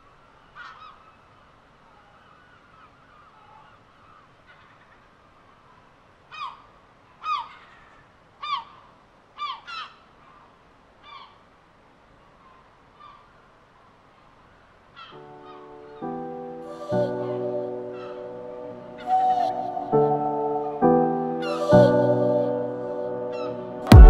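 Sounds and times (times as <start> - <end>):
faint steady hiss: 0.0 - 24.0
gulls calling: 14.5 - 24.0.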